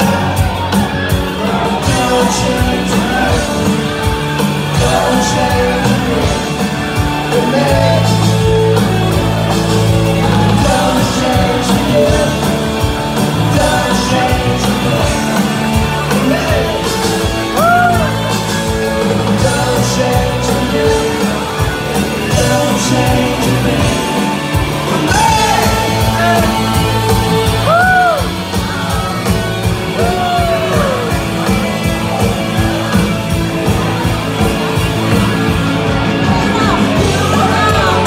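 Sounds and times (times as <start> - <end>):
person singing: 0.0 - 28.3
electric guitars: 0.0 - 38.0
live rock band playing: 0.0 - 38.0.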